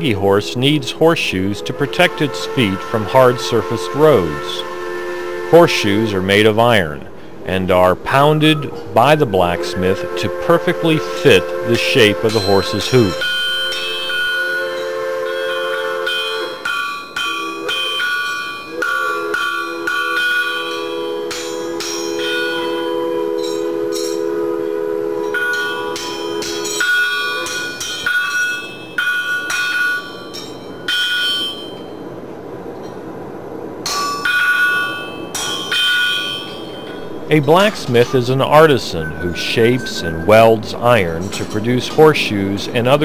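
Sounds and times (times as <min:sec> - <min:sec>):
hammer ringing on anvil: 0:15.5 - 0:24.3, 0:25.2 - 0:31.9, 0:33.9 - 0:37.7.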